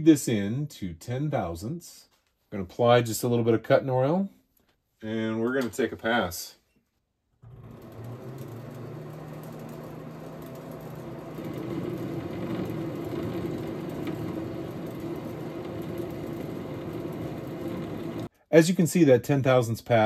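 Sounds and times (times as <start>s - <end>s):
metal lathe running: 7.4s - 18.3s.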